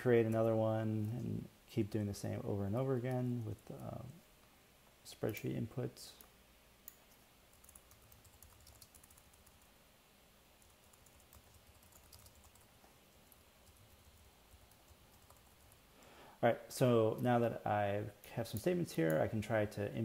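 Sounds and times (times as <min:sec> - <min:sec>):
faint keyboard typing: 0:03.0 - 0:04.2, 0:05.2 - 0:09.8, 0:10.6 - 0:16.1.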